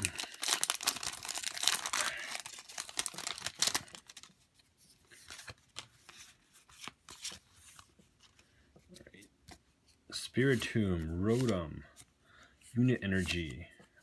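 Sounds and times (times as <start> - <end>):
foil wrapper tearing and crinkling: 0.0 - 4.3
cards rustling: 0.0 - 14.0.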